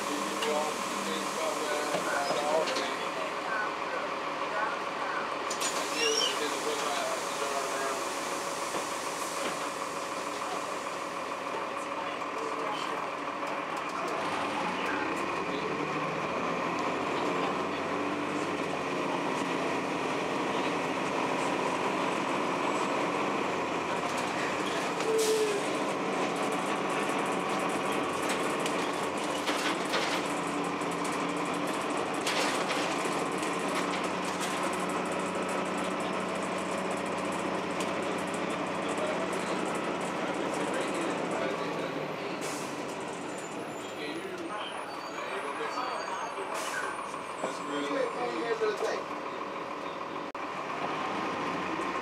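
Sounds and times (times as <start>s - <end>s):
bus diesel engine drone: 0.0s - 52.0s
bus body rattling: 18.6s - 43.8s.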